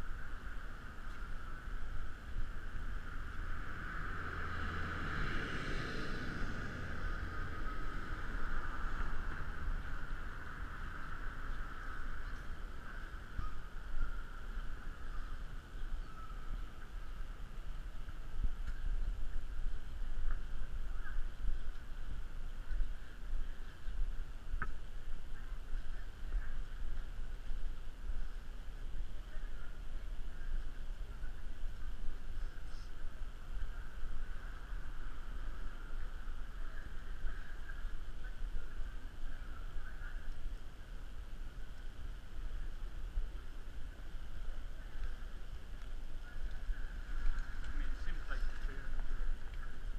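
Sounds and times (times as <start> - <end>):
low rumble on microphone: 0.0 - 49.9.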